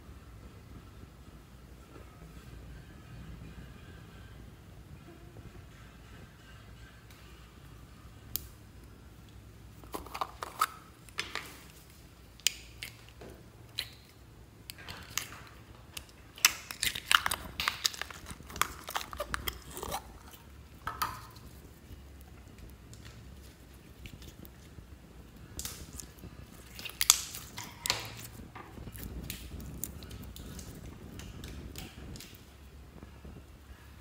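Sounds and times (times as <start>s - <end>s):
sticky slime squelches: 9.8s - 32.5s.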